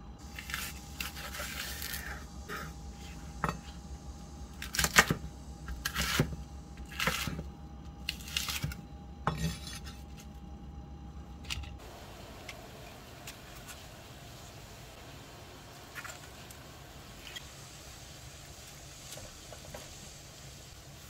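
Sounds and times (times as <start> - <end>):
water boiling in a wok: 11.8 - 21.0.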